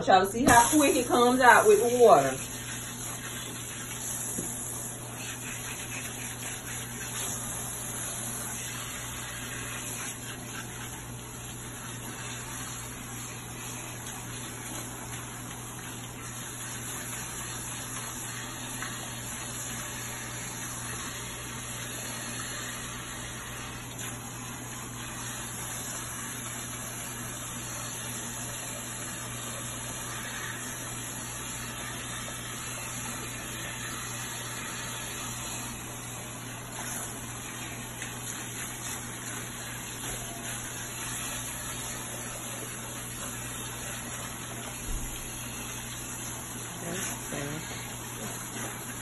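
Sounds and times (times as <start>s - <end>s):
water spraying and splashing: 0.4s - 49.0s.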